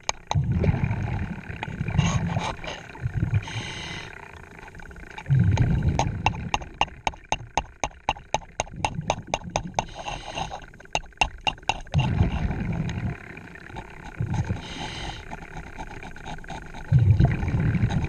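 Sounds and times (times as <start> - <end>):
exhaled bubbles rumbling: 0.0 - 18.0
fast even clicking: 4.6 - 12.2, 13.6 - 18.0.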